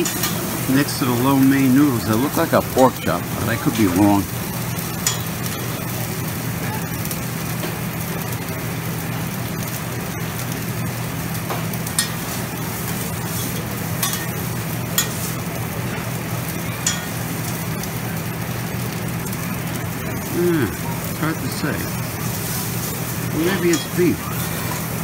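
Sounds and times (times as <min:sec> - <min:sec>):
food sizzling on a griddle: 0:00.0 - 0:25.0
metal spatulas scraping griddle: 0:12.0 - 0:14.4, 0:22.3 - 0:24.9.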